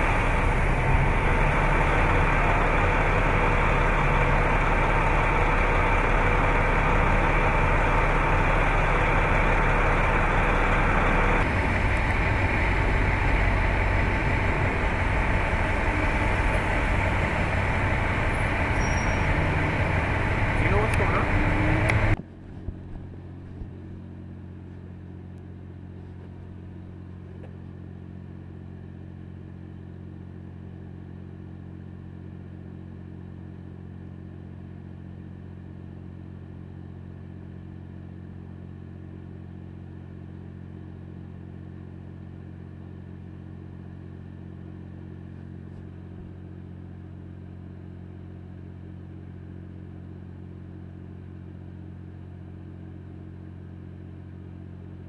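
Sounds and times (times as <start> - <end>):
engine idling: 0.0 - 29.6.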